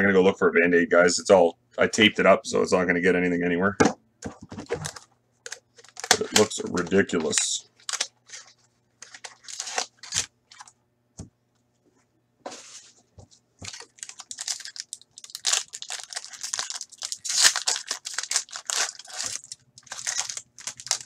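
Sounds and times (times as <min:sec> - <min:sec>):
foil wrapper tearing and crinkling: 0:04.8 - 0:06.6, 0:07.2 - 0:10.7, 0:13.6 - 0:21.0.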